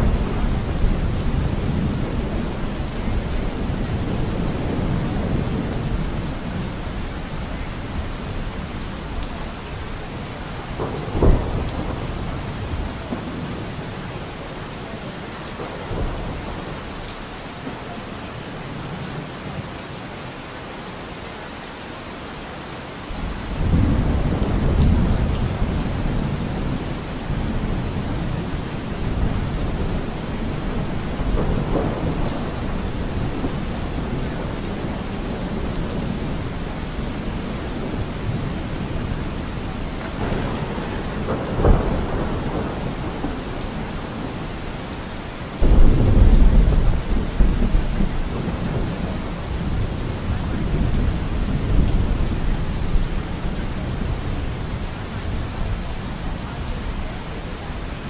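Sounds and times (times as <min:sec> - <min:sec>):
rain hissing: 0:00.0 - 0:19.6, 0:22.8 - 0:58.0
thunder rolling: 0:10.4 - 0:13.9, 0:23.2 - 0:44.6, 0:45.6 - 0:53.1.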